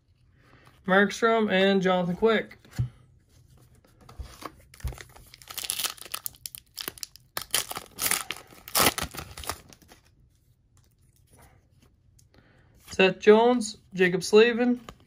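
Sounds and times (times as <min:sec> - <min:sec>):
foil wrapper tearing and crinkling: 0:04.8 - 0:10.0.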